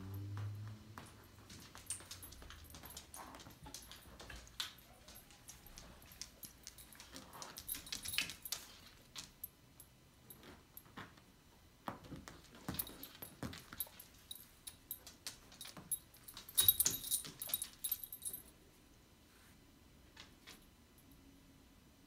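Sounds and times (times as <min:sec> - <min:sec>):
animals scuffling on wooden floor: 0:00.1 - 0:09.3
collar tag jingling: 0:00.9 - 0:11.0, 0:12.3 - 0:18.6.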